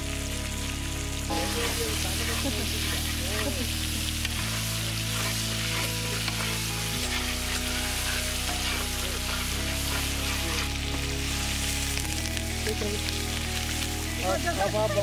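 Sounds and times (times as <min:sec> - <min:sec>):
background music low chords: 0:00.0 - 0:15.0
chicken sizzling in hot oil: 0:00.0 - 0:15.0
metal spatula stirring: 0:01.4 - 0:11.9.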